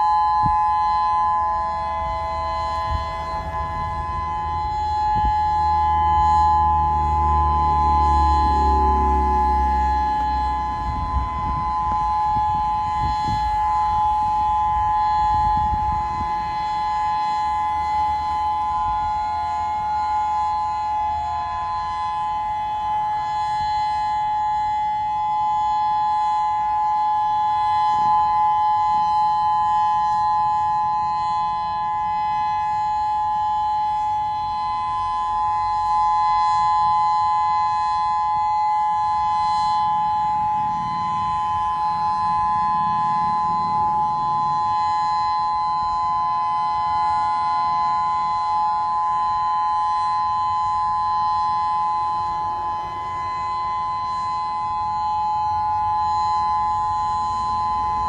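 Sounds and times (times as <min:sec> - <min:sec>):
electronic warning siren steady tones: 0:00.0 - 0:58.0.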